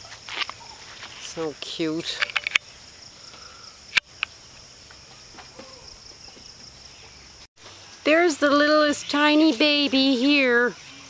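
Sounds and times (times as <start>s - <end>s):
sharp clicks: 2.2s - 2.6s, 3.9s - 4.3s.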